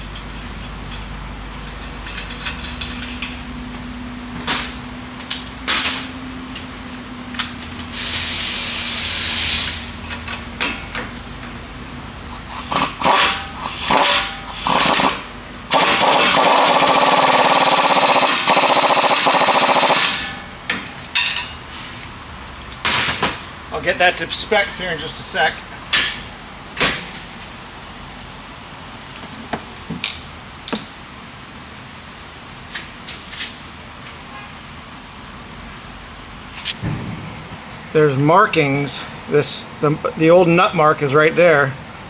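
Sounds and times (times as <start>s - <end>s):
tools and parts clanking: 0.0s - 3.5s, 20.0s - 21.6s
impact wrench running: 12.3s - 20.3s.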